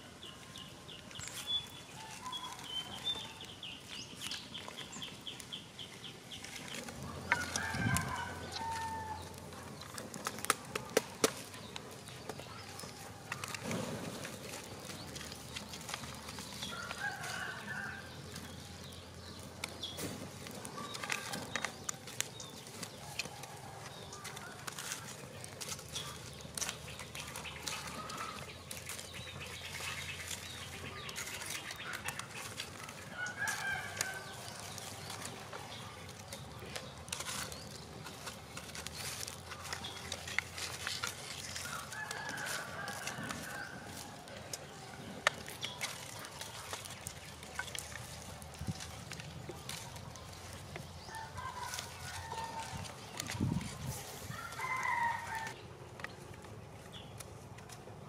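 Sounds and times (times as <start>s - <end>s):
wood fire crackling and popping: 0.2s - 57.8s
rooster crowing: 7.3s - 9.4s, 16.6s - 18.1s, 32.8s - 34.7s, 41.6s - 44.3s, 51.1s - 52.9s, 54.3s - 55.6s.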